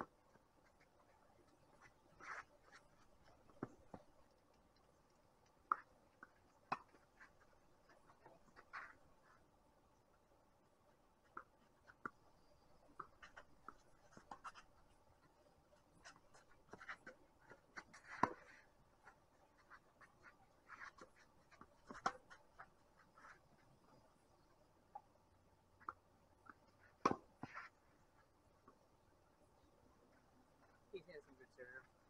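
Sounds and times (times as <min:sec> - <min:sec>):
ball bouncing: 0:05.7 - 0:07.1, 0:25.8 - 0:27.6.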